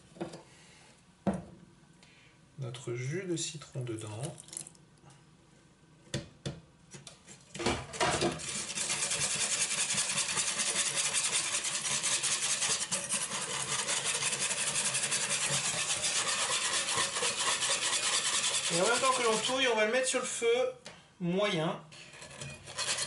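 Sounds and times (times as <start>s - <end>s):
whisk beating against pan: 8.2s - 19.7s, 22.4s - 23.0s.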